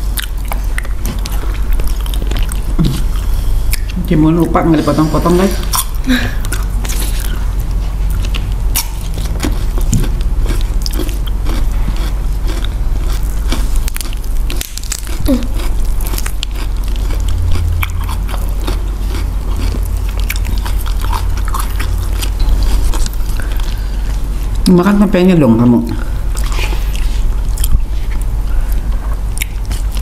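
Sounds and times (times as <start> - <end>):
steady low hum: 0.0 - 30.0
chewing: 0.1 - 4.0, 5.6 - 24.7, 25.9 - 30.0
crunchy cucumber bites: 8.2 - 23.3.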